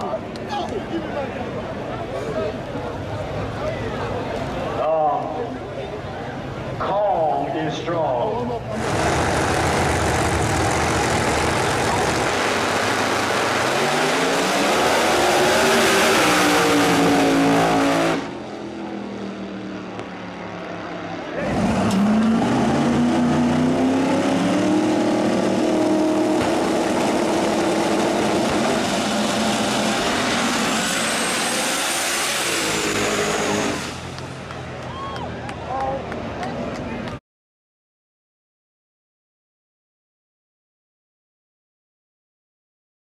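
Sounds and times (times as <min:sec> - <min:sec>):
racing car engines accelerating: 0:08.6 - 0:34.9.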